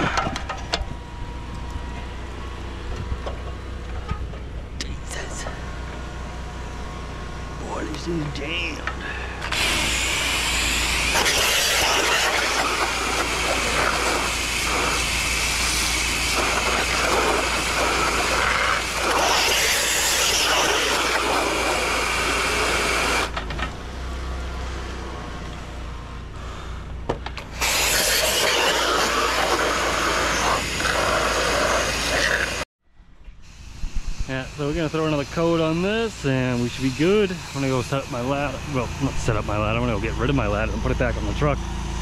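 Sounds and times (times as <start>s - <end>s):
pressure washer spray hissing: 9.0s - 23.3s, 27.5s - 32.6s, 33.4s - 39.7s.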